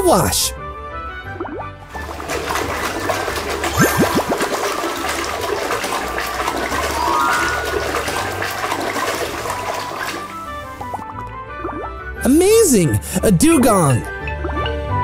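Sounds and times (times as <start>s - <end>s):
water churning and splashing: 1.9s - 11.0s
bubbling gurgles: 2.0s - 10.3s.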